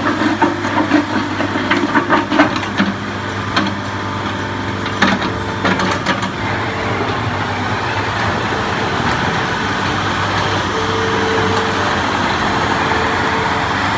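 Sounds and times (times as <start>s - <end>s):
excavator diesel engine running: 0.0s - 13.9s
brief higher tone: 10.2s - 13.9s.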